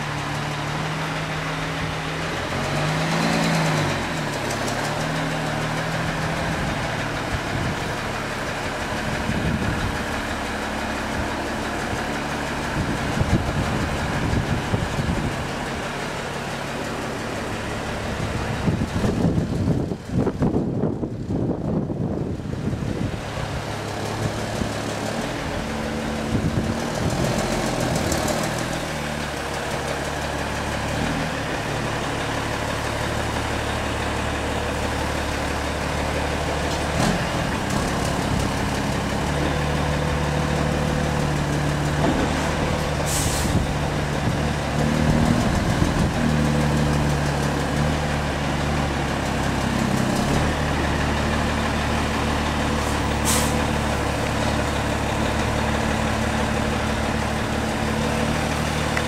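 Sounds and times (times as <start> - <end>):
diesel truck engine at low revs: 0.0 - 59.0
air brake hiss: 43.1 - 43.6, 53.2 - 53.6.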